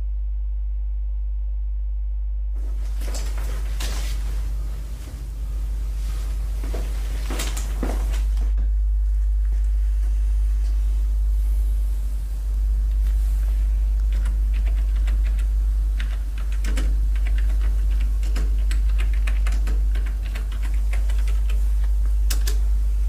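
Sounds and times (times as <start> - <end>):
steady low hum: 0.0 - 23.0
keyboard typing clicks: 14.0 - 22.6.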